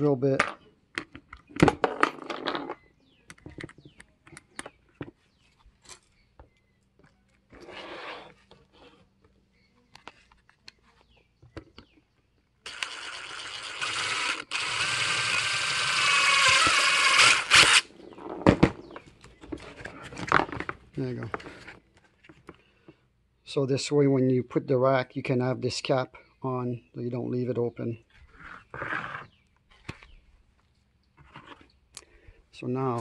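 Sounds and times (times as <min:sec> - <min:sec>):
cordless drill motor whine: 0:12.7 - 0:17.9.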